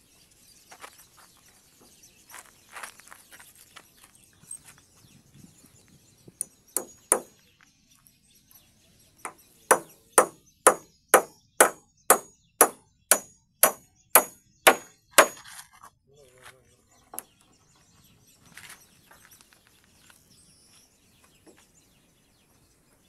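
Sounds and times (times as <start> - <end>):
hammer striking nail: 6.8 - 7.3, 9.3 - 15.4.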